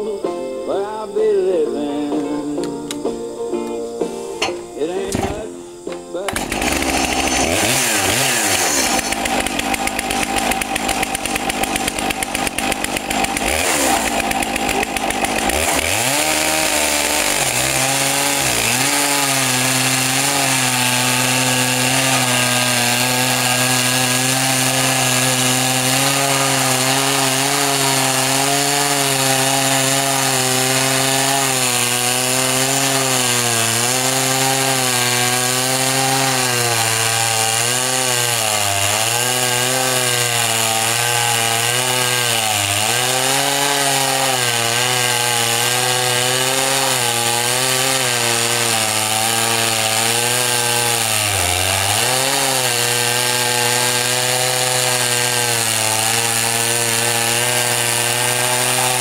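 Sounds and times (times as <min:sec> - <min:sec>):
chainsaw cutting log: 0:04.4 - 0:59.0.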